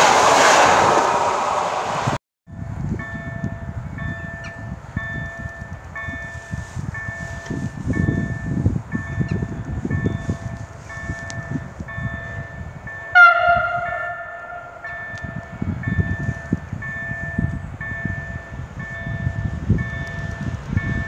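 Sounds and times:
level-crossing warning bell: 2.5s - 21.0s
train horn blast: 13.1s - 15.4s.

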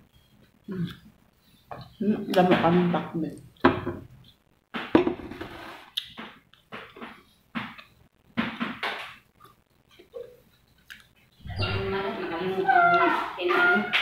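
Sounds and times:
chewing and mouth noises: 9.4s - 11.2s.

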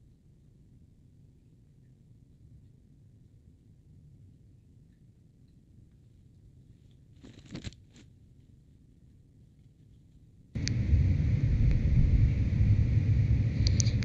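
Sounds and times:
faint rustle: 5.9s - 8.7s
motorcycle passing: 10.6s - 14.0s.

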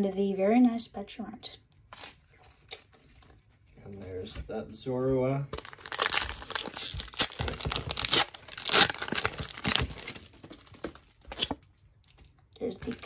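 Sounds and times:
foil wrapper tearing and crinkling: 5.6s - 11.8s.

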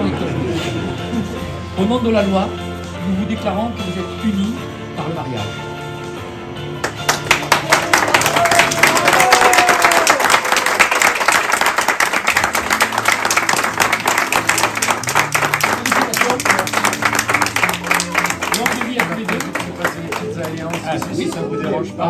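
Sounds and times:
music playing: 0.0s - 22.0s
crowd applauding: 6.8s - 22.0s.

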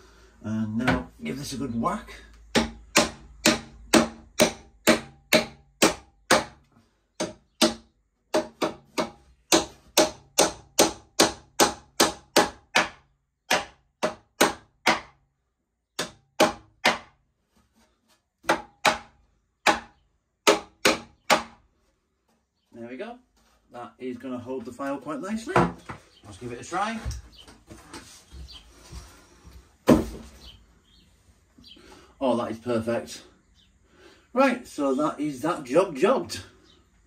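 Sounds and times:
hammer driving nails into wood: 2.5s - 6.6s, 7.2s - 15.2s, 16.0s - 17.2s, 18.4s - 21.6s.

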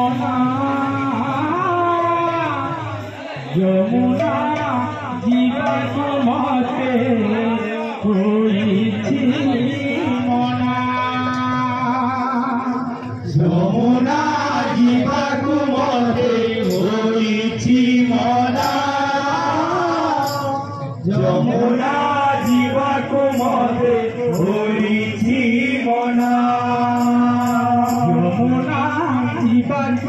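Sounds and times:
barrel drum: 0.0s - 7.5s
man chanting into a microphone: 0.0s - 30.0s
sharp percussion strikes: 0.0s - 30.0s.

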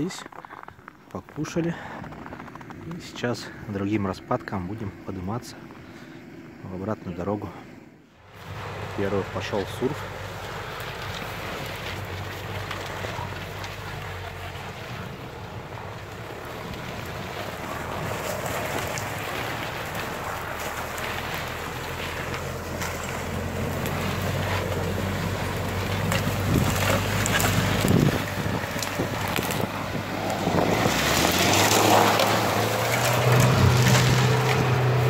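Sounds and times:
car engine running: 0.4s - 35.0s
wind on the microphone: 26.4s - 31.3s.

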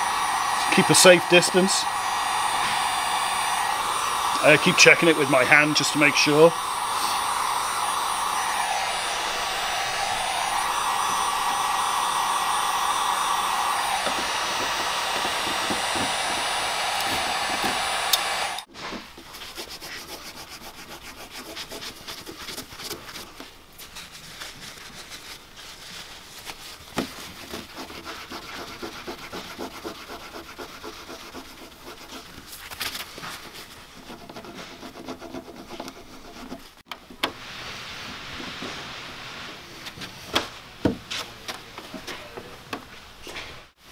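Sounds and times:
heat gun blowing: 0.0s - 18.7s
scratchy rubbing and scraping: 18.8s - 36.8s.

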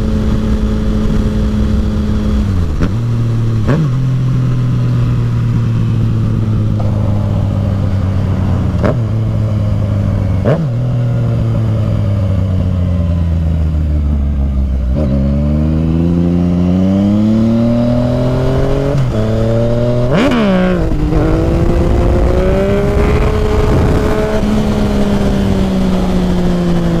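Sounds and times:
motorcycle engine accelerating: 0.0s - 27.0s
wind rushing over helmet: 5.6s - 11.8s.

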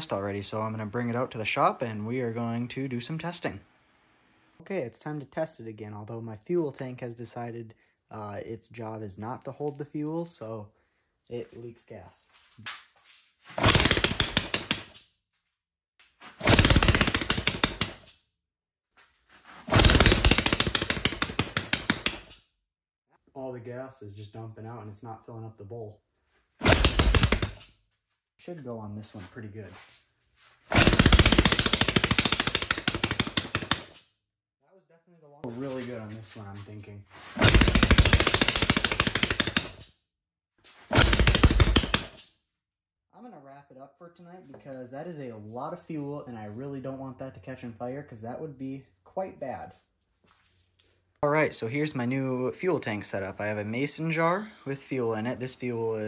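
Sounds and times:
small engine firing in sharp bangs: 13.6s - 14.8s, 16.4s - 18.0s, 19.7s - 22.2s, 26.6s - 27.6s, 30.7s - 33.9s, 37.4s - 39.8s, 40.9s - 42.2s.

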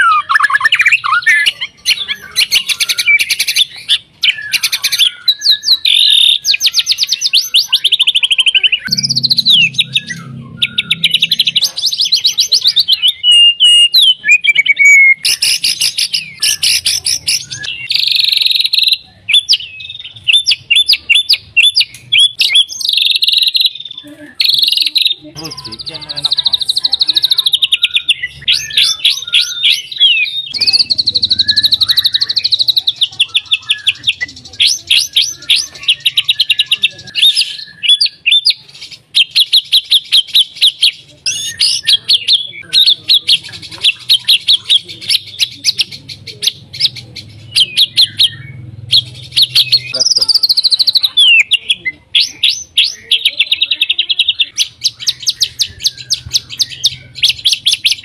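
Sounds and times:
bird singing rattles and whistles: 54.2s - 58.0s.

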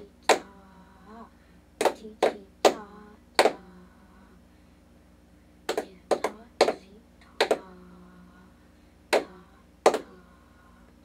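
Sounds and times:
people clapping a rhythm: 0.2s - 0.5s, 1.8s - 3.6s, 5.7s - 7.7s, 9.1s - 10.2s.

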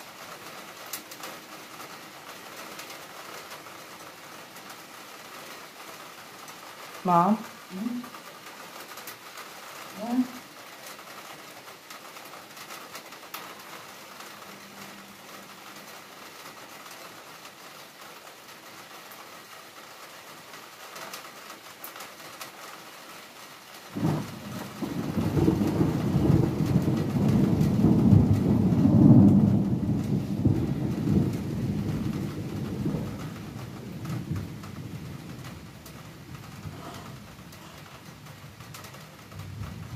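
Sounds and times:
steady rain falling: 0.0s - 39.9s
thunder crack and rumble: 23.9s - 39.9s.

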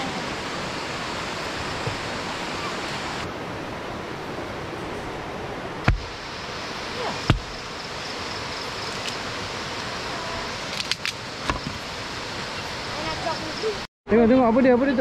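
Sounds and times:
river water rushing: 0.0s - 13.9s
blade chopping into log: 5.9s - 6.1s, 7.2s - 7.6s.

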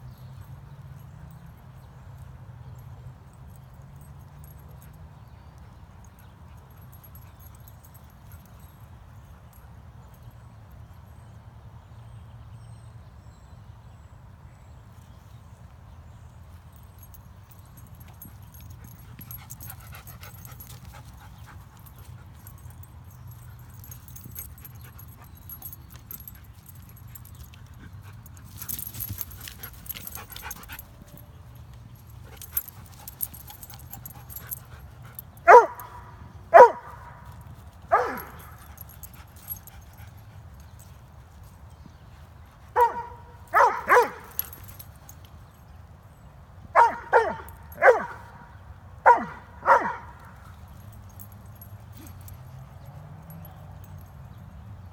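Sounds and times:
dog barking: 35.5s - 37.2s, 37.9s - 38.6s, 42.8s - 44.4s, 46.8s - 50.2s.

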